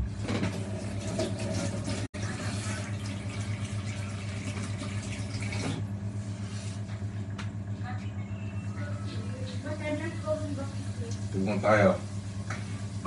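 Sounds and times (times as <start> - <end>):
low electrical hum: 0.0 - 13.0
tap water running into sink: 0.2 - 5.9.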